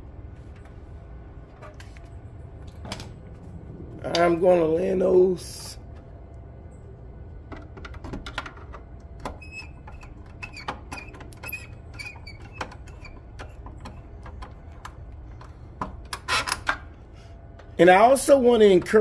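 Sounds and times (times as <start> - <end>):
low steady hum: 0.0 - 19.0.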